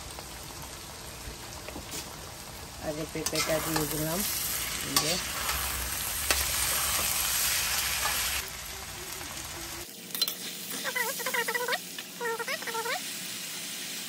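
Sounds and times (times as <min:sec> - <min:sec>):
food sizzling in a pan: 0:00.0 - 0:14.0
metal spatula stirring: 0:03.2 - 0:07.2.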